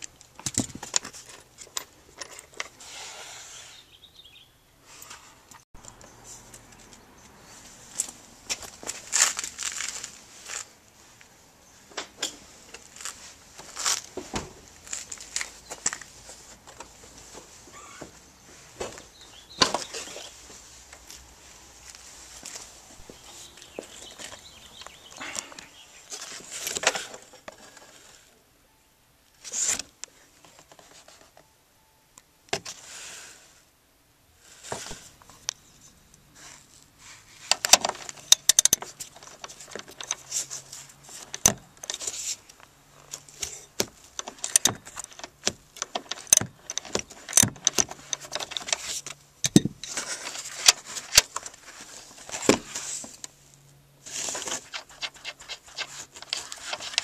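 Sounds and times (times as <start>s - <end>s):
metallic clicks and rattles of nuts: 0.0s - 2.8s, 37.5s - 51.6s.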